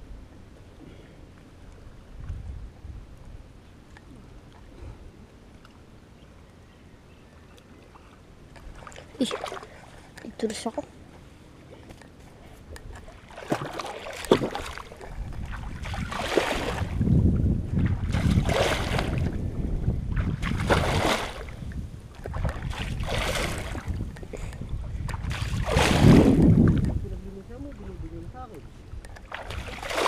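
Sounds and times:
wind on microphone: 1.8s - 3.6s, 12.6s - 30.0s
water sloshing and splashing: 7.8s - 11.1s, 11.9s - 28.0s, 29.0s - 30.0s.

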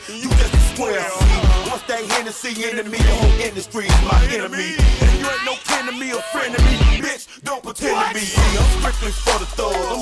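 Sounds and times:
rapping over a beat: 0.0s - 10.0s
heavy bass drum hits: 8.4s - 9.4s.

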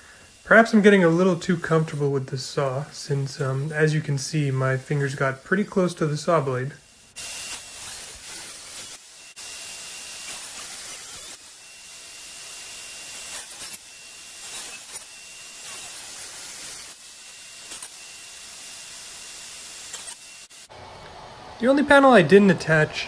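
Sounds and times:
table saw cutting plywood: 0.0s - 23.0s.

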